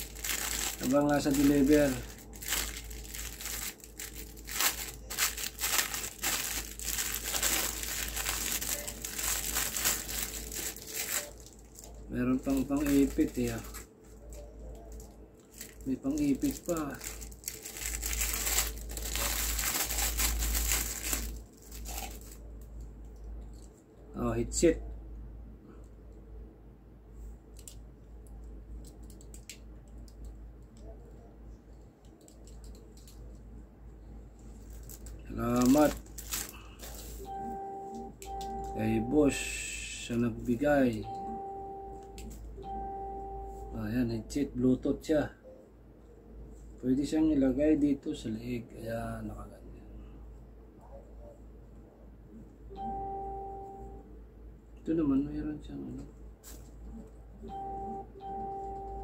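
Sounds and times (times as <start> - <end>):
plastic packaging crinkling: 0.0 - 22.7, 34.4 - 37.2
low steady hum: 0.0 - 59.0.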